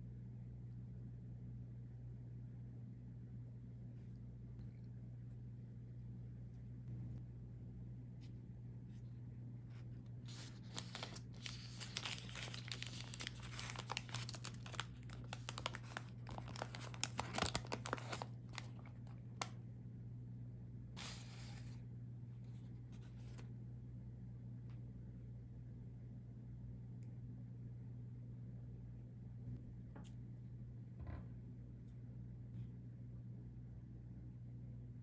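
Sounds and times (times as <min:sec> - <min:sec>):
paper sliding: 0:10.2 - 0:18.2, 0:21.0 - 0:21.8
paper wrapper tearing and crinkling: 0:10.3 - 0:19.5.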